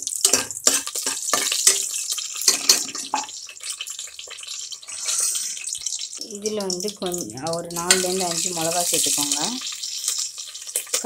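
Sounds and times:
spices sizzling in oil: 0.0 - 11.0
metal ladle scraping pot: 0.2 - 3.3, 4.8 - 5.7.

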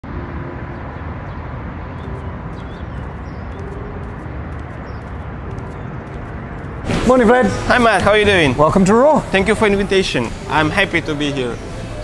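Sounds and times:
distant traffic rumble: 0.0 - 12.0
high bird chirps: 1.2 - 6.2.

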